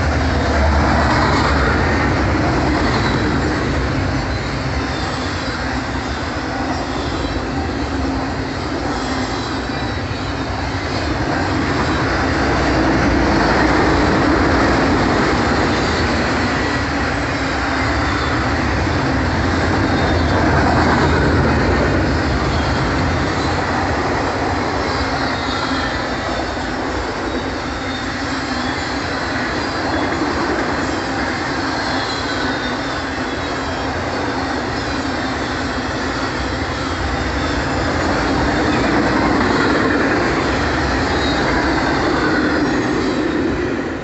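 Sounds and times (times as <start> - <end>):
freight train rolling rumble: 0.0 - 44.0
high squealing train wheels: 0.0 - 44.0.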